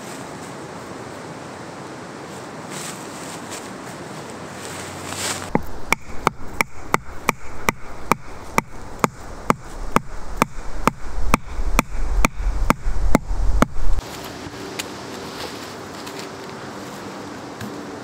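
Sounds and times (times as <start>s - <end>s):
stick hammering wooden peg: 5.5s - 13.8s.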